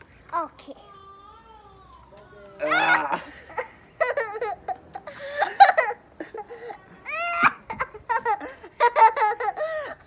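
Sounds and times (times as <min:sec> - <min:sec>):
man laughing: 0:02.7 - 0:06.7
girl laughing: 0:02.7 - 0:10.0.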